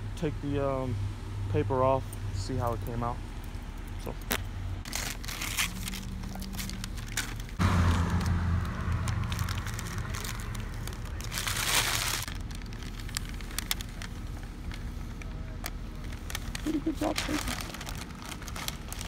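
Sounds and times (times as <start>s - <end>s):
paper crinkling and rustling: 4.8s - 19.0s.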